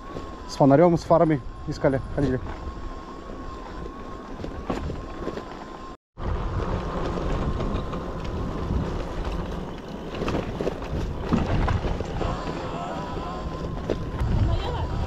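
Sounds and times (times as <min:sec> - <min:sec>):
thin steady whine: 0:00.0 - 0:15.0
wind rushing over microphone: 0:06.2 - 0:15.0.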